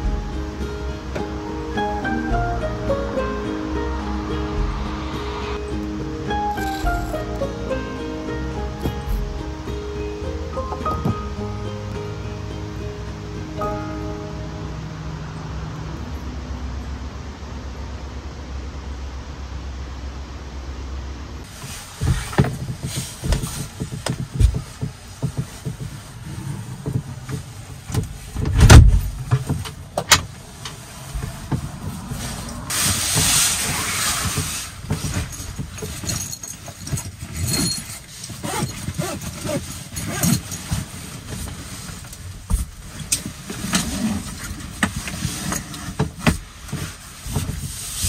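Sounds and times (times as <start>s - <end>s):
heavy thump: 4.5s - 5.6s, 26.9s - 30.3s
bag and jacket rustling: 6.5s - 7.4s, 30.9s - 48.0s.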